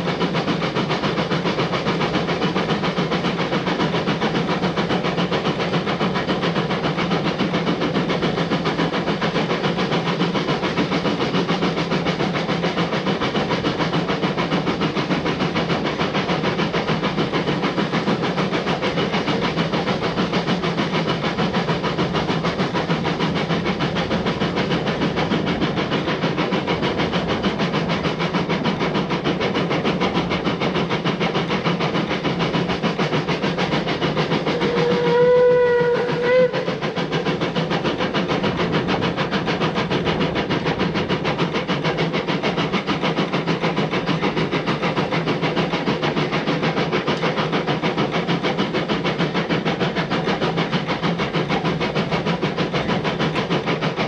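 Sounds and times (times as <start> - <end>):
steam train running: 0.0 - 54.0
steam whistle: 34.4 - 36.8.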